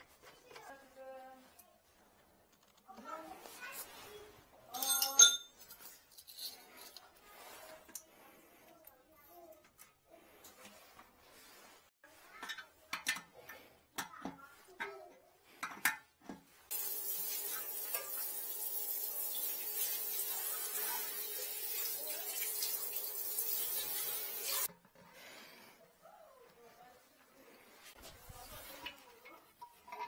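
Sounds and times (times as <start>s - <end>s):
shower sprayer water hissing on tiles: 16.7s - 24.7s.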